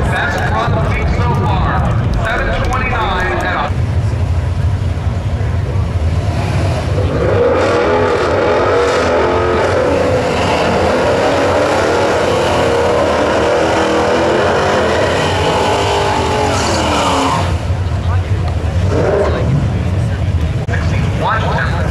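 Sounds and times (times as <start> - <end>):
engines revving high: 0.0 - 21.9.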